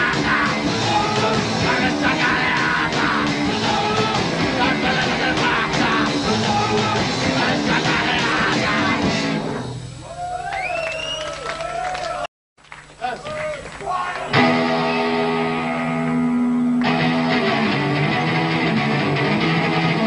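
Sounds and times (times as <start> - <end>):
punk rock band playing: 0.0 - 9.8, 14.3 - 20.0.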